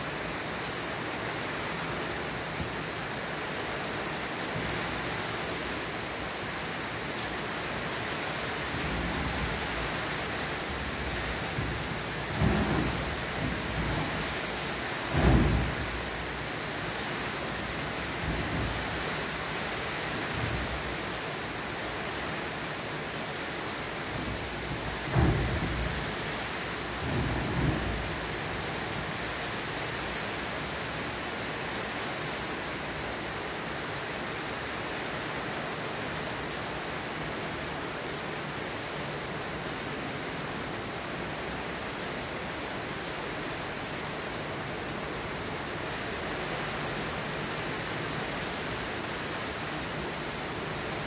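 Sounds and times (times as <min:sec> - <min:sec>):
steady rain: 0:00.0 - 0:51.0
low thumps: 0:09.0 - 0:16.2.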